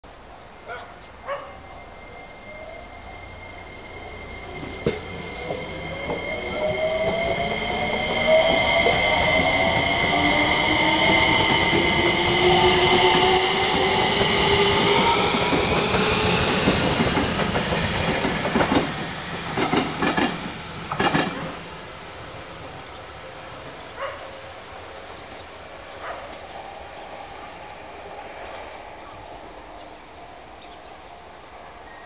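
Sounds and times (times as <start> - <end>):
electric train whine: 0.1 - 32.0
steady high tone: 1.4 - 17.0.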